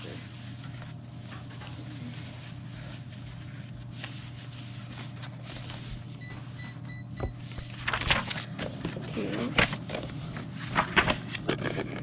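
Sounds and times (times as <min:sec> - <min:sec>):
paper rustling: 0:00.0 - 0:12.0
steady low hum: 0:00.0 - 0:12.0.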